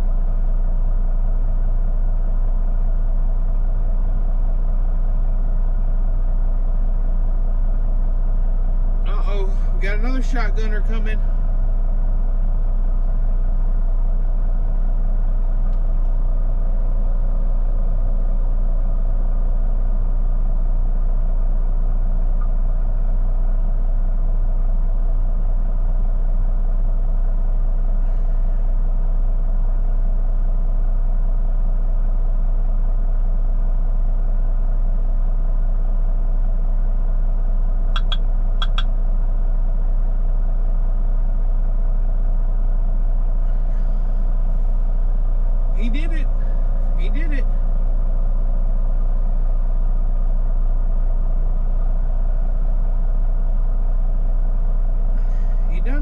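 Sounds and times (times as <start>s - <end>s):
diesel engine idling: 0.0s - 56.0s
short high chirps: 38.0s - 38.8s.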